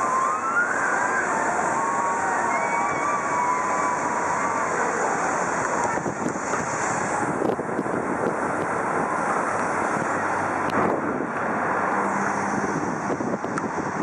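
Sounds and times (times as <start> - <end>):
road traffic rushing: 0.0 - 14.0
wind on microphone: 1.4 - 14.0.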